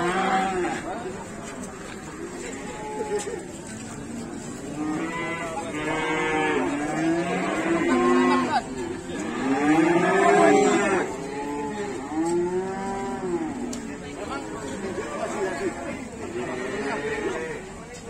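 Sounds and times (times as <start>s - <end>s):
cows mooing: 4.5s - 17.6s.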